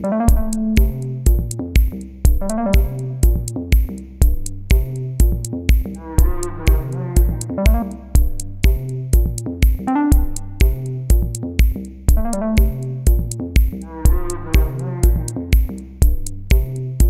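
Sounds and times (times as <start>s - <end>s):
synth melody: 0.0s - 1.2s, 2.4s - 3.4s, 6.0s - 8.3s, 9.9s - 10.8s, 12.2s - 13.1s, 13.9s - 15.4s
drum-machine beat: 0.0s - 17.0s.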